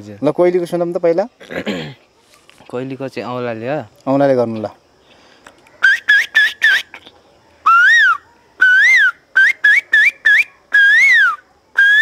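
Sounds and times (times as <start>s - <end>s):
finger whistle imitating bird call: 5.8s - 12.0s.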